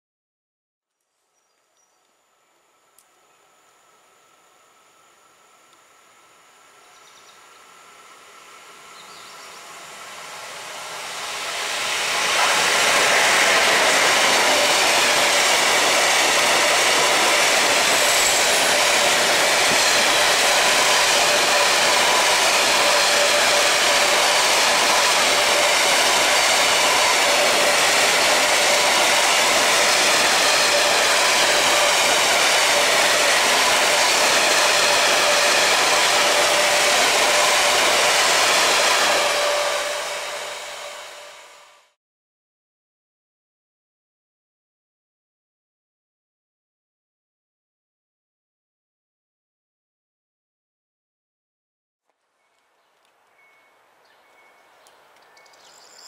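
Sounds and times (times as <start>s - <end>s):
freight train wheels on rail: 4.0s - 42.0s.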